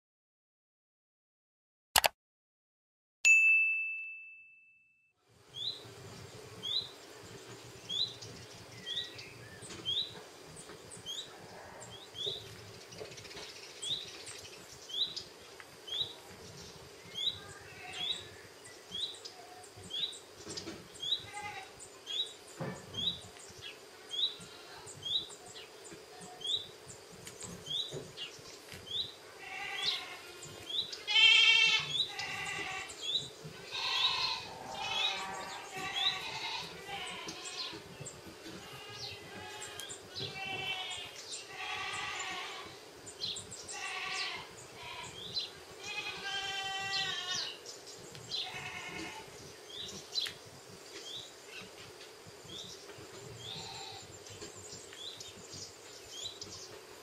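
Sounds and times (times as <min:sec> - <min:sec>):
bird chirping: 0:05.5 - 0:42.5
loud long animal cries: 0:31.1 - 0:32.9, 0:33.6 - 0:37.7, 0:38.6 - 0:42.7.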